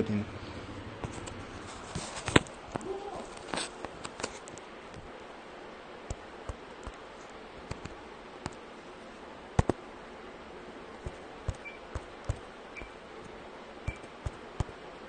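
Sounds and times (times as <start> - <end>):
steady hiss: 0.0 - 15.0
fingertips tapping touchscreen: 11.0 - 13.0, 13.9 - 14.8.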